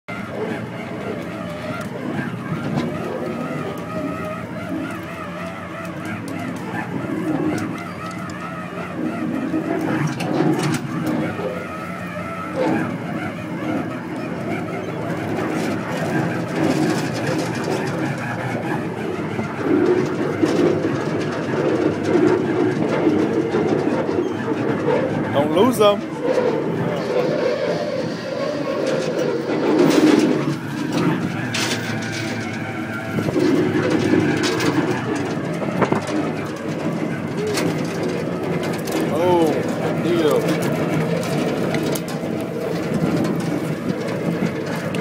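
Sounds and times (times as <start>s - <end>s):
boat engine droning: 0.0s - 45.0s
water splashing against hull: 26.0s - 45.0s.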